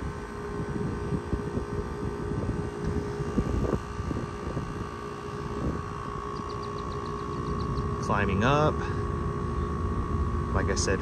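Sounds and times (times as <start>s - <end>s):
wind buffeting microphone: 0.0s - 8.4s
compressor humming: 0.0s - 11.0s.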